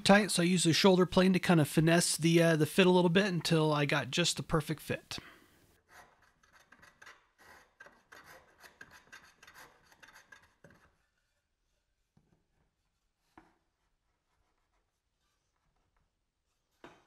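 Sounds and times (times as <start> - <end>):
plane scraping wood: 5.9 - 11.1.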